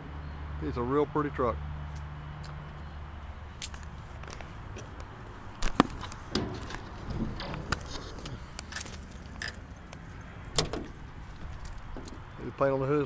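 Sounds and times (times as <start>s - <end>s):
hood latch clicks and knocks: 5.6s - 12.4s.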